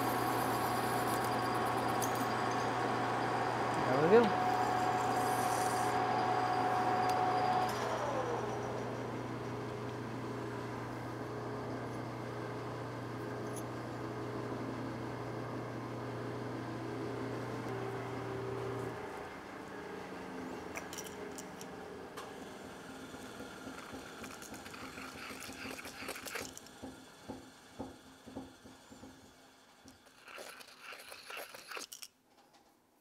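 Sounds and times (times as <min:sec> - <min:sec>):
lathe cutting whine: 0:00.0 - 0:09.8.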